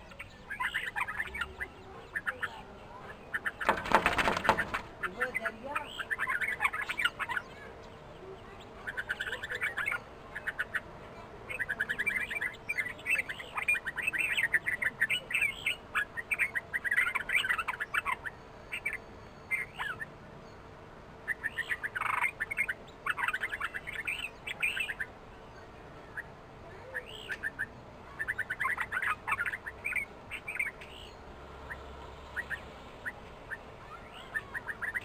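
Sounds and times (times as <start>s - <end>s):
birds chattering calls: 0.0s - 35.0s.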